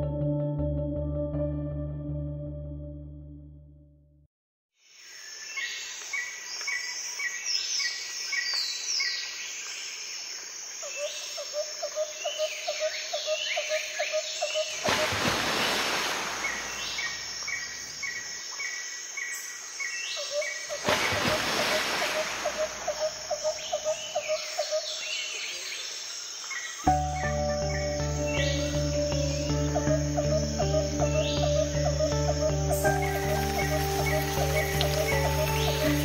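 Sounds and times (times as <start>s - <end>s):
high insect buzz: 26.5s - 36.0s
birds chirping and whistling: 26.9s - 36.0s
low repeated bird notes: 26.9s - 36.0s.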